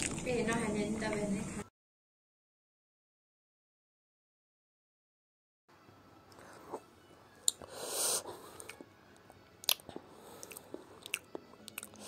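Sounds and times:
wet mouth clicks: 0:07.4 - 0:07.7, 0:08.6 - 0:08.9, 0:09.6 - 0:12.0
close-up chewing: 0:07.4 - 0:12.0.

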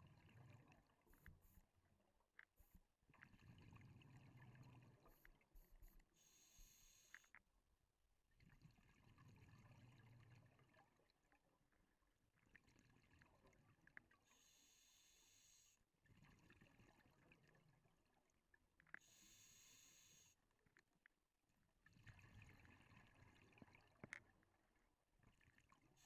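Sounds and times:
hissing inhale: 0:06.2 - 0:07.3, 0:14.3 - 0:15.8, 0:19.0 - 0:20.4.

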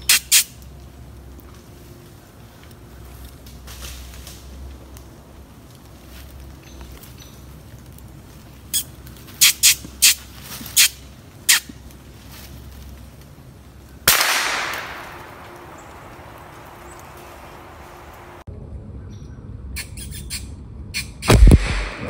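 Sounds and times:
rifle shot: 0:14.1 - 0:15.4, 0:21.2 - 0:22.0.

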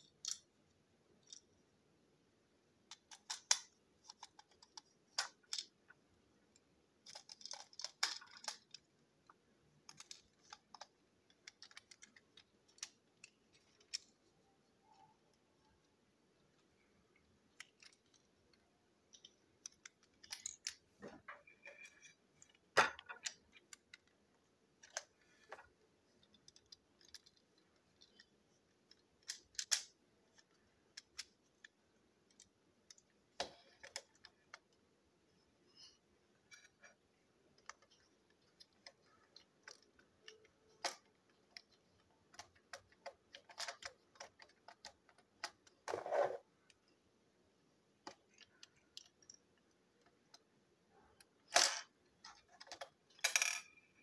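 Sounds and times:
plastic toy parts clicking on table: 0:02.8 - 0:05.8, 0:06.5 - 0:14.2, 0:19.1 - 0:20.8, 0:26.2 - 0:34.7, 0:37.6 - 0:45.9, 0:48.0 - 0:50.5, 0:51.2 - 0:53.8.

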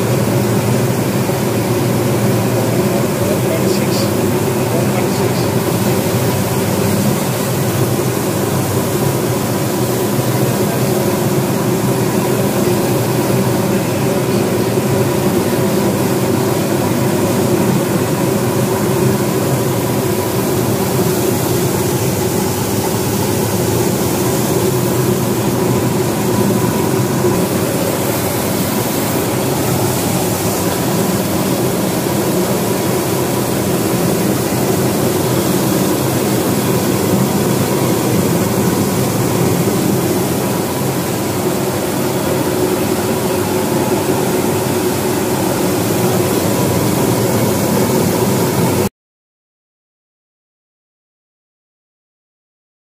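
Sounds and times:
turbine machine drone: 0:00.0 - 0:48.9
water spray hissing: 0:19.8 - 0:41.6.

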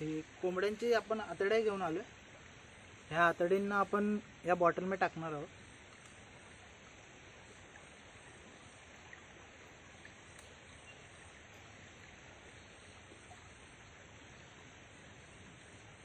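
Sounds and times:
stream running over rocks: 0:00.0 - 0:16.0
faint ticks: 0:05.6 - 0:06.6, 0:07.4 - 0:11.8.

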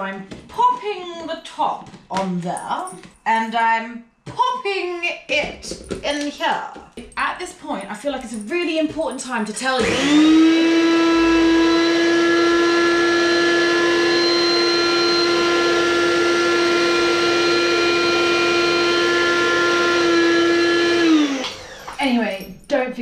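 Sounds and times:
blender motor grinding biscuits: 0:09.7 - 0:22.1.

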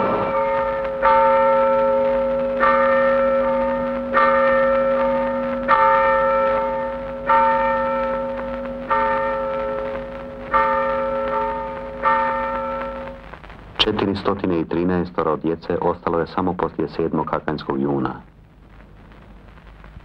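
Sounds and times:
church bell tolling slowly: 0:00.0 - 0:13.2.

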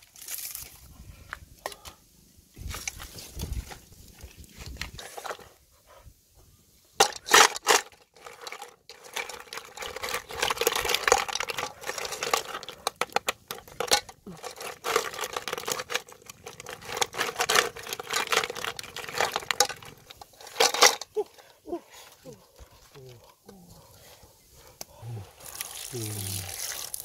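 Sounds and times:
shells clinking in metal pot: 0:07.0 - 0:21.2.

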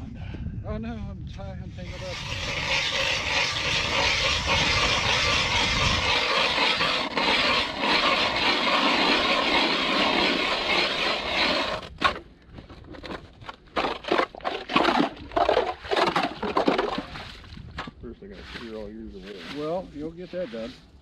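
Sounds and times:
ice auger scraping through ice: 0:01.8 - 0:12.2, 0:13.7 - 0:17.4.

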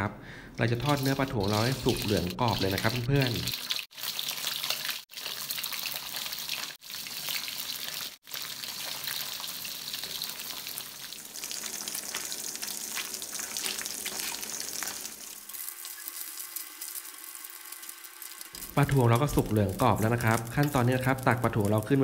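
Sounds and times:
fish deep-frying in oil: 0:00.7 - 0:22.0.

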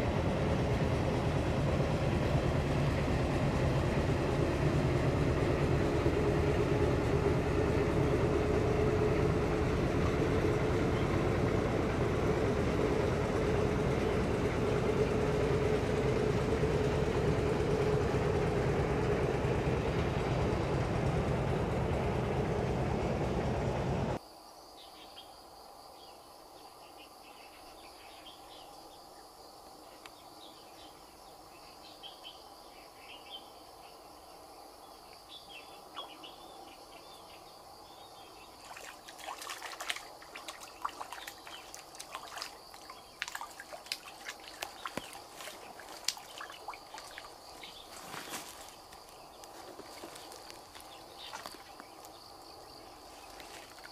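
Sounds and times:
motorboat engine humming: 0:00.0 - 0:24.2, 0:36.0 - 0:53.9
birds chirping: 0:35.4 - 0:53.9
fish splashing: 0:38.6 - 0:53.9.

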